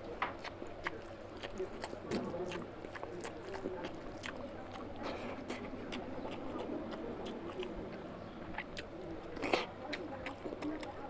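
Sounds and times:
man chewing: 0.0s - 11.0s.

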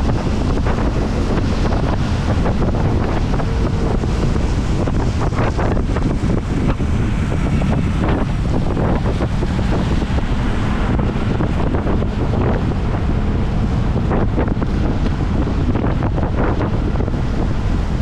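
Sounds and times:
tyres on wet road: 0.0s - 18.0s
wind noise on microphone: 0.0s - 18.0s.

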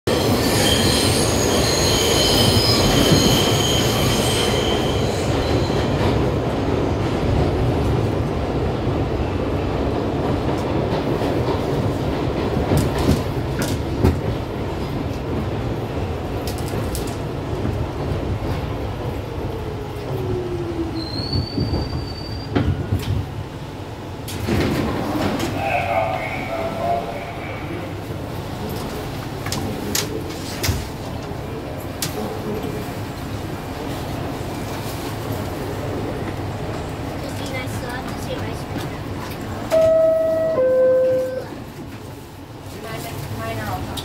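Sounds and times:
subway train rumble: 0.0s - 44.0s
subway wheels squealing on rails: 0.1s - 6.6s, 19.1s - 23.2s, 24.9s - 43.9s
train clanks: 9.7s - 18.8s, 21.0s - 23.5s, 24.2s - 27.5s, 28.2s - 44.0s
train braking whine: 39.7s - 41.6s.

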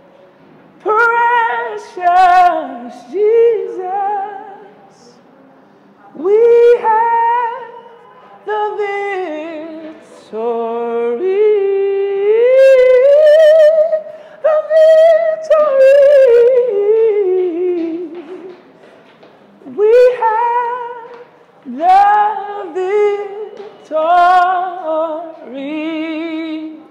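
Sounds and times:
man singing unaccompanied: 0.8s - 5.2s, 8.4s - 18.2s, 19.7s - 26.9s.

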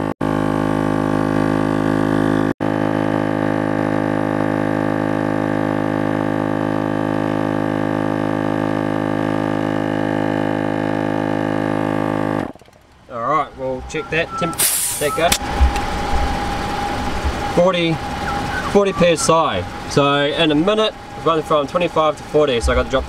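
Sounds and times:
air compressor droning: 8.4s - 23.0s.

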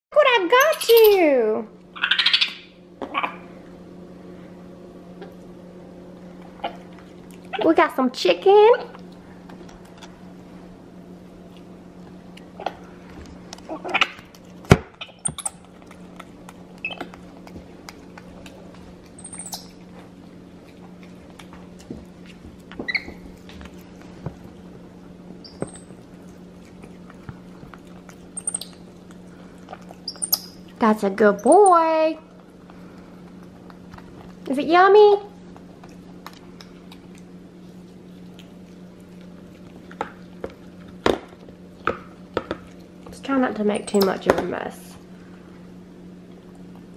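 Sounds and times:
steady low hum: 0.1s - 46.9s
monkey squeaking: 2.0s - 3.4s, 19.2s - 19.8s, 22.9s - 23.2s, 25.4s - 26.0s, 28.4s - 28.8s, 30.0s - 30.6s, 31.3s - 31.9s, 43.7s - 44.2s
monkey chewing: 6.3s - 7.7s, 8.8s - 34.6s, 35.2s - 44.1s.

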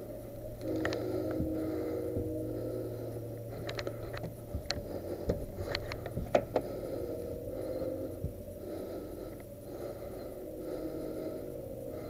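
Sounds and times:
low rumble: 0.0s - 12.0s.

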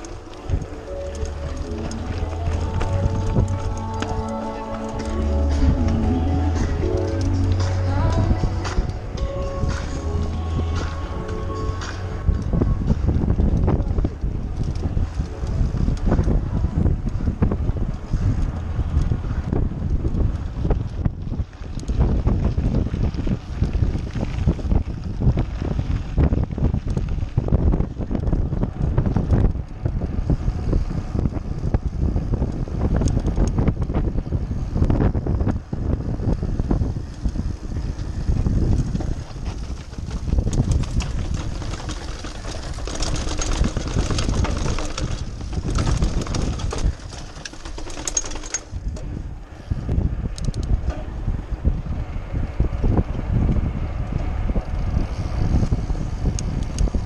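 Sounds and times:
mountain bike rumbling over rough ground: 0.0s - 57.0s
wind buffeting microphone: 0.0s - 57.0s
small knocks and rattles: 38.8s - 49.1s.

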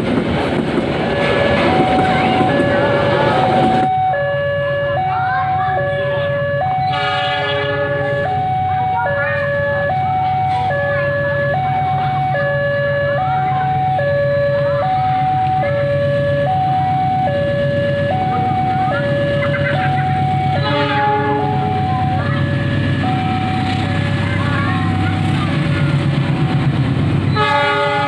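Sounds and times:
level crossing two-tone alarm: 1.1s - 24.8s.

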